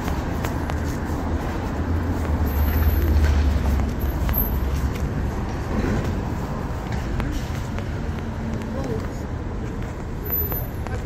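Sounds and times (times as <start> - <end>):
car passing close: 0.0 - 8.5.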